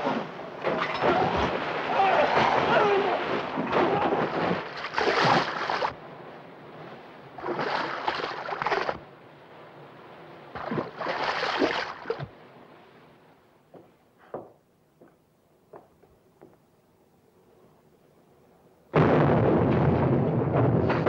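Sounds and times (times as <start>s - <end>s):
sea washing: 0.0s - 13.2s
depth charge water eruptions: 0.2s - 6.0s, 7.3s - 9.0s, 10.5s - 12.3s.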